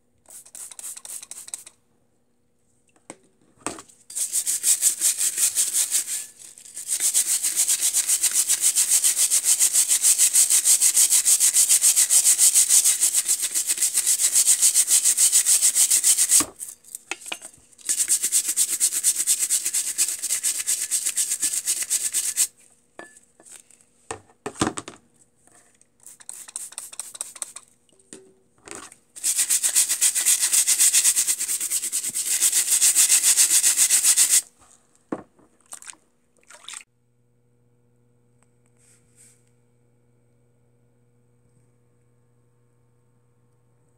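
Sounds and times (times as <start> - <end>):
scrub brush scrubbing metal: 0.3 - 1.7, 4.1 - 16.7, 17.8 - 22.5, 26.0 - 27.6, 29.2 - 34.5
water splashes: 35.6 - 36.8.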